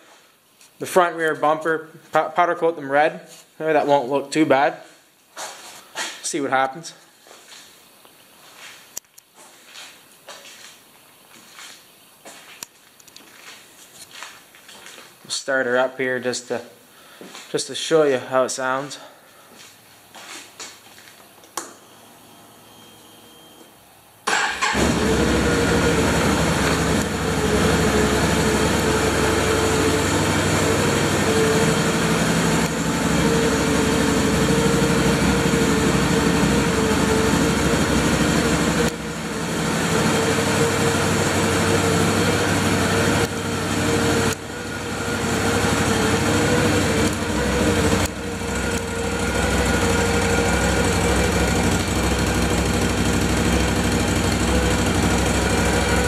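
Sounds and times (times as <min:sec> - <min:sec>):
atv engine idling: 0:24.3 - 0:56.0.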